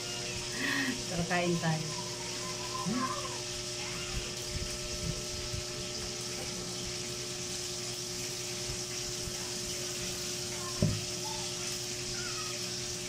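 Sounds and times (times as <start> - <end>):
dull thump: 10.8 - 11.0.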